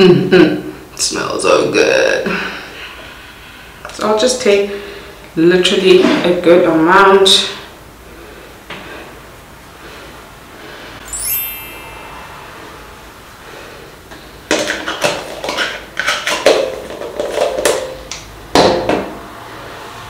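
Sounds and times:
rising chime: 11.0s - 14.1s.

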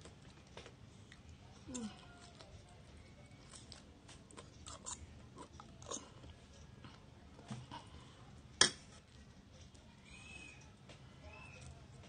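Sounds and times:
person slurping and chewing noodles: 3.4s - 6.3s.

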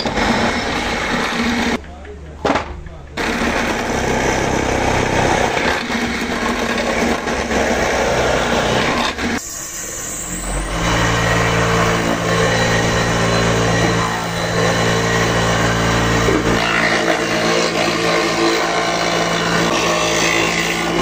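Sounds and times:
motor whining and humming: 3.2s - 21.0s
drill press boring into wood: 10.6s - 21.0s.

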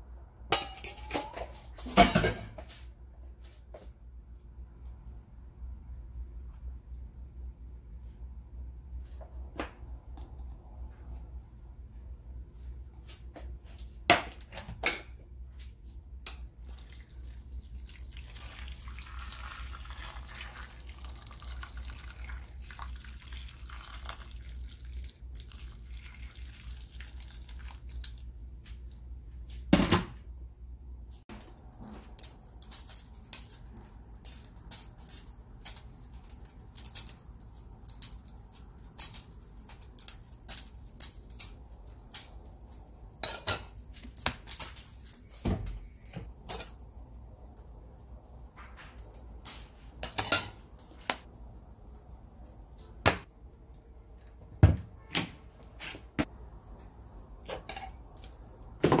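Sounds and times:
water pouring into a pan: 16.6s - 28.5s.

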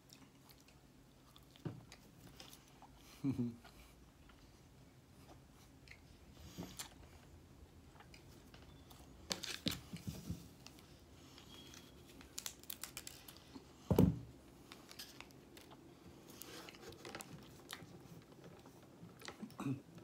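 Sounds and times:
wrapper crinkling: 11.7s - 13.6s.

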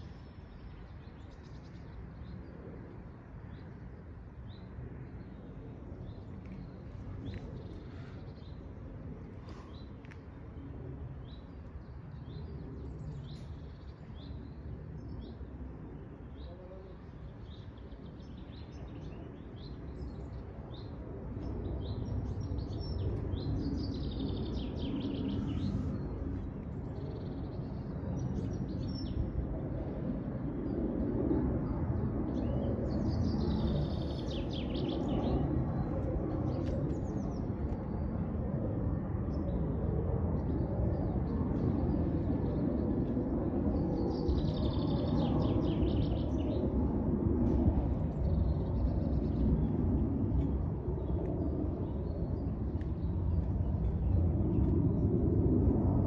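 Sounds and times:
small birds chirping: 16.2s - 29.3s, 32.4s - 38.1s, 44.0s - 46.7s.

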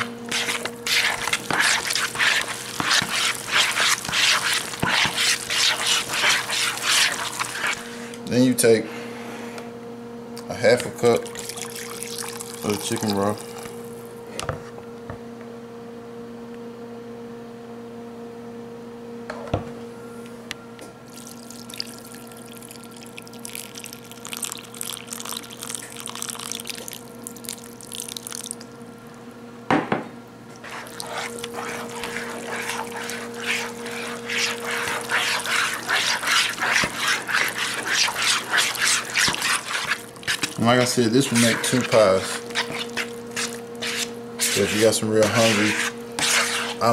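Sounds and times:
spoon stirring in plastic bowl: 0.0s - 7.9s, 11.4s - 13.8s, 30.6s - 46.9s
broth pouring into bowl: 21.1s - 28.7s, 30.6s - 44.5s.

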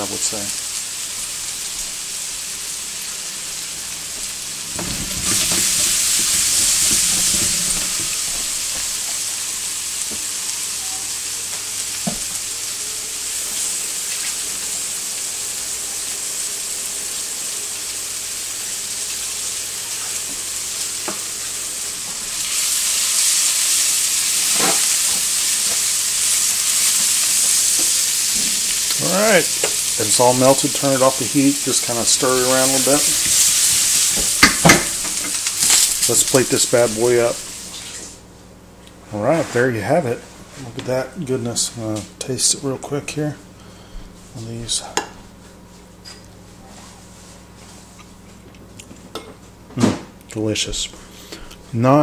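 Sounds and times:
food sizzling in a skillet: 0.0s - 38.3s.

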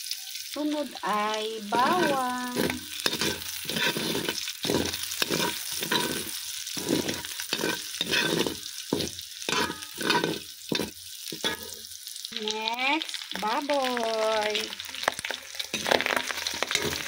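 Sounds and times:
aromatics sizzling in oil: 0.0s - 17.0s
metal ladle scraping a wok: 1.7s - 11.9s, 15.7s - 17.0s.

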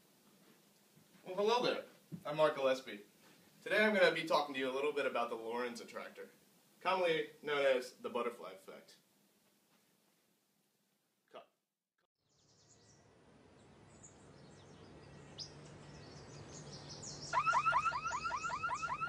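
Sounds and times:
birds chirping: 12.2s - 19.0s
car alarm chirping: 17.3s - 19.0s.

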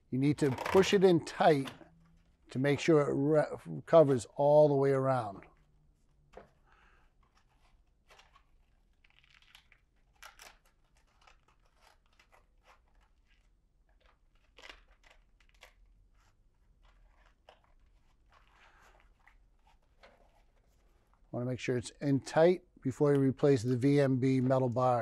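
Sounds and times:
hands rustling and scraping wrap: 5.4s - 21.4s.

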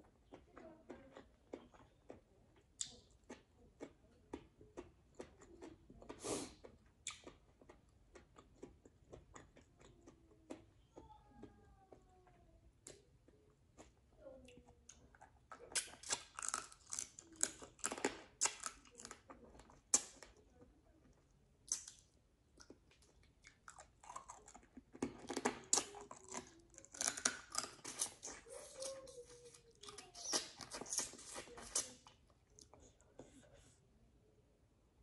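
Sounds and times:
chewing and mouth smacking: 0.1s - 11.6s, 21.7s - 33.4s.

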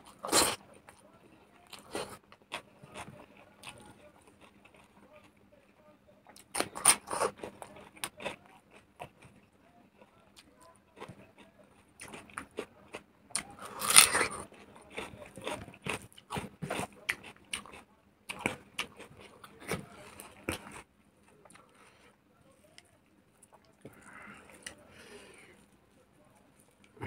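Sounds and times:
person chewing and crunching food: 1.6s - 5.4s, 6.3s - 25.8s.

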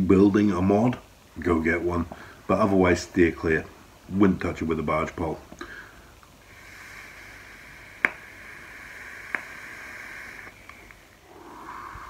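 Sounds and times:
breathy exhale: 5.6s - 12.0s
hiss of air and sizzling coil: 6.4s - 12.0s
sharp pops: 7.3s - 11.0s.

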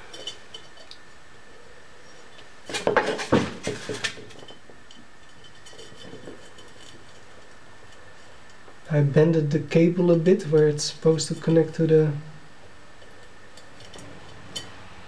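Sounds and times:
metallic clicks and scrapes: 2.3s - 8.6s, 13.0s - 14.8s.

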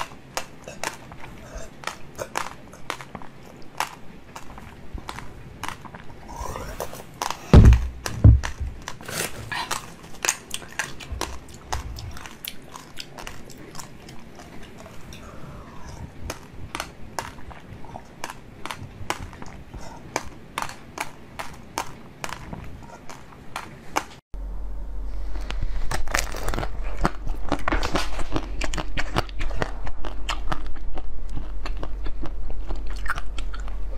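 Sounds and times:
wet mouth sucking and chewing: 0.0s - 23.8s, 25.8s - 33.9s
loud low thumps: 7.5s - 8.8s.

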